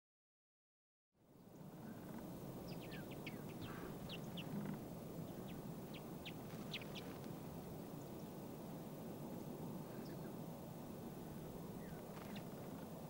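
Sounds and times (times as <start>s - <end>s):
low background noise: 1.2s - 13.0s
small birds calling: 1.4s - 8.4s, 9.8s - 10.5s, 11.2s - 12.8s.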